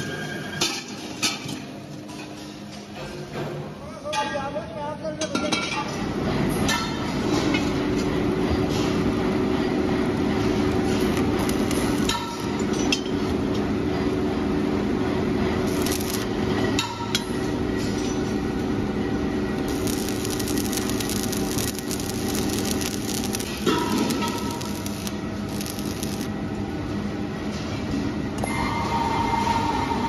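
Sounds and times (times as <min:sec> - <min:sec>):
workshop machinery hum: 0:00.0 - 0:04.0, 0:05.5 - 0:30.0
steel parts clinking: 0:19.7 - 0:26.3.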